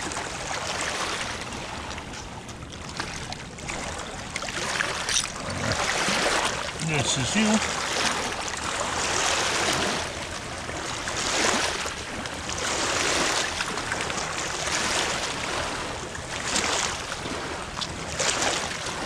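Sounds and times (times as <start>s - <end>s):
small waves washing on shore: 0.0s - 19.0s.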